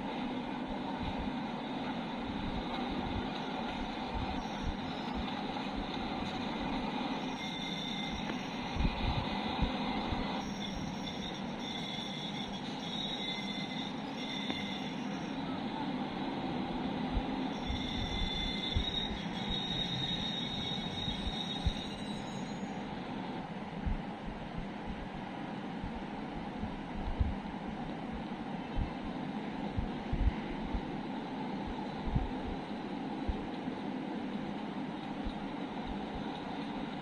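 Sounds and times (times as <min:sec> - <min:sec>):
train wheels rumbling on rail: 0:00.0 - 0:37.0
high wheel squeal: 0:04.2 - 0:15.7, 0:17.4 - 0:23.1.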